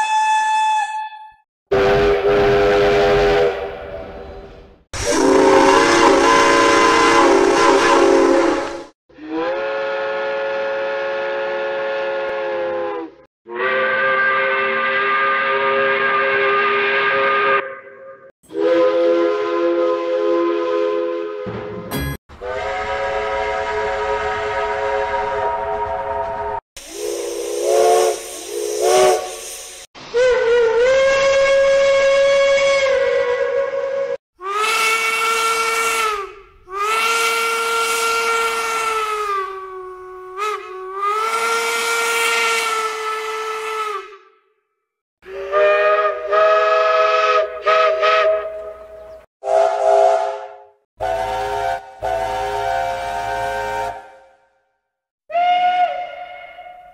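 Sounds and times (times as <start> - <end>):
steam locomotive whistle: 0.0 - 4.4, 5.0 - 21.7, 22.3 - 44.4, 45.2 - 54.5, 55.3 - 56.9
steam hiss: 26.8 - 29.9.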